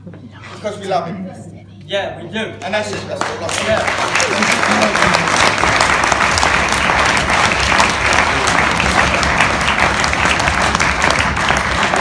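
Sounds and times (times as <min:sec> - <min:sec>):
audience applauding: 0:02.8 - 0:12.0.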